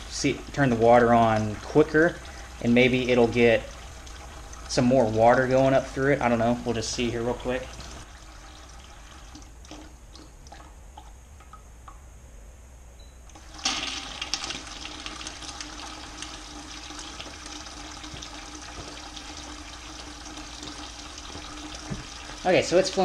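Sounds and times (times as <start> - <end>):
water rushing through tubes: 0.0 - 11.0, 13.4 - 23.0
water splashing into bucket: 13.4 - 23.0.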